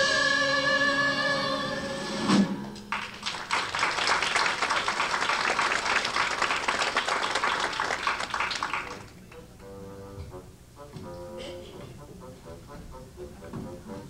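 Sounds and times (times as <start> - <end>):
audience applauding: 2.8 - 9.5
instrumental music: 8.9 - 14.0.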